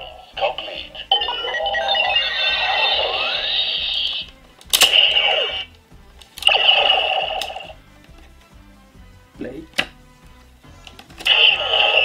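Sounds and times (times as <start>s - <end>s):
steady electronic tone: 1.1s - 4.3s.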